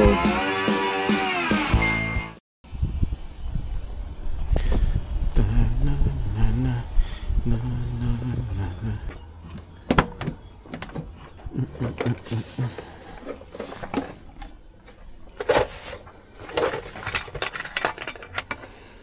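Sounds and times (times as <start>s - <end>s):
low rumble: 2.7s - 9.2s
metal parts clicking and rattling: 15.3s - 18.8s.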